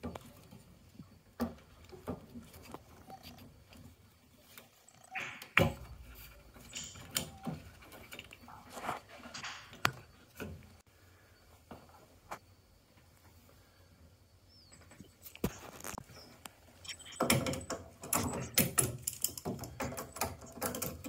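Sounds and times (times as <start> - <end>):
scraping rustles: 5.9 - 10.8
plastic and metal parts clicking: 16.9 - 21.0.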